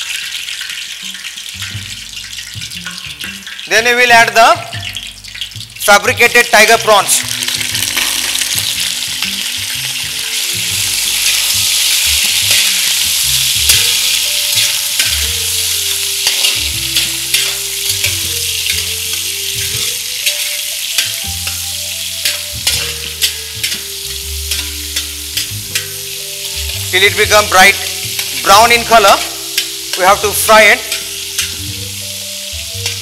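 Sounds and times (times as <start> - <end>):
prawns sizzling in hot oil: 0.0 - 33.0
metal spatula scraping pan: 7.8 - 26.8, 29.4 - 30.1, 30.9 - 31.7.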